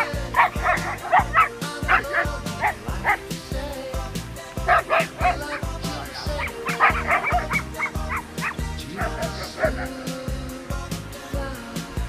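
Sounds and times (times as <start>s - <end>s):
dogs barking: 0.0s - 3.3s, 4.6s - 10.2s
background music: 0.0s - 12.0s.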